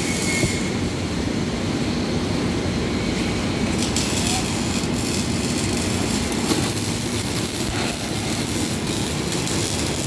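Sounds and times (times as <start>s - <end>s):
welding arcs crackling buzz: 0.0s - 1.0s, 3.1s - 10.0s.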